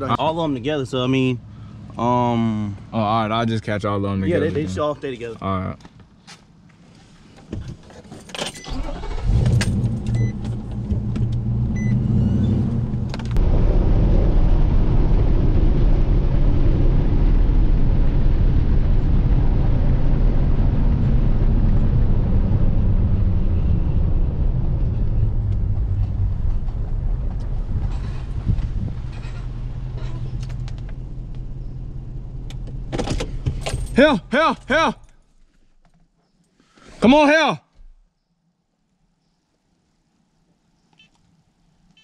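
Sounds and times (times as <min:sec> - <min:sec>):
tyres on dirt road: 0:00.0 - 0:38.2
truck engine rumble: 0:08.6 - 0:35.0.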